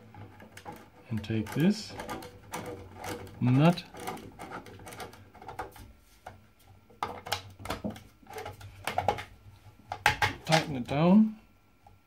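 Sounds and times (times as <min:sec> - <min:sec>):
plastic clicks and knocks: 0:00.1 - 0:09.3, 0:09.9 - 0:10.7
plastic tapping on metal pipe: 0:09.9 - 0:10.7.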